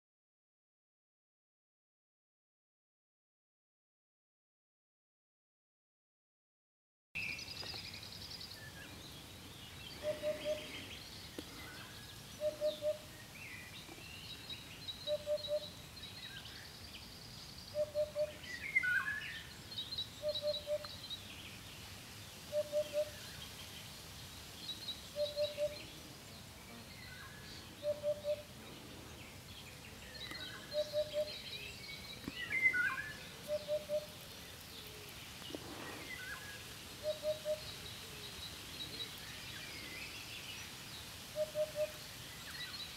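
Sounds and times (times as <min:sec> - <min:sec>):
faint bird calls: 0:09.9 - 0:14.2, 0:14.9 - 0:16.6, 0:17.7 - 0:19.5, 0:20.2 - 0:21.0, 0:22.5 - 0:23.5, 0:24.9 - 0:26.2, 0:26.8 - 0:40.7, 0:41.3 - 0:42.9
hoopoe singing oop-oop-oop: 0:10.0 - 0:11.0.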